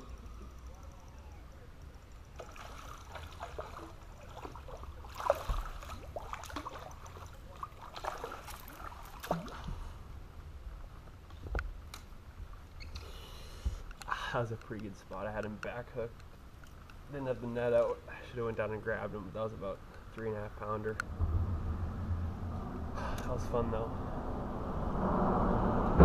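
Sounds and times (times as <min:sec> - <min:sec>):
water lapping against boat hull: 0:02.3 - 0:10.0
steady low rumble: 0:18.5 - 0:26.0.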